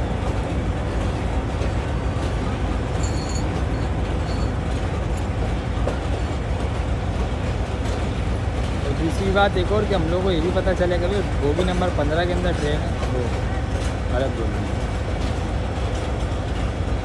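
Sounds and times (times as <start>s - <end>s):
train coaches rumbling: 0.0s - 17.0s.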